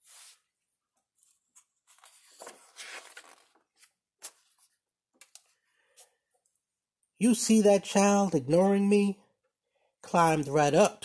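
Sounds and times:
book page turning: 0:00.0 - 0:05.6.

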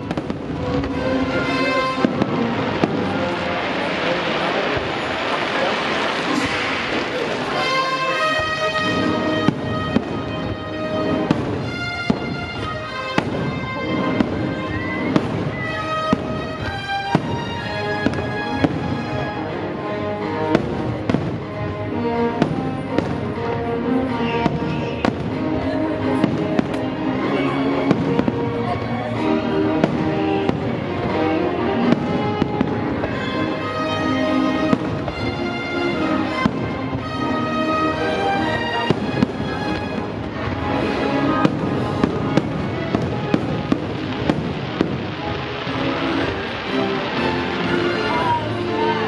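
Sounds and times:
fireworks bangs: 0:00.0 - 0:49.0
show music: 0:00.0 - 0:49.0.

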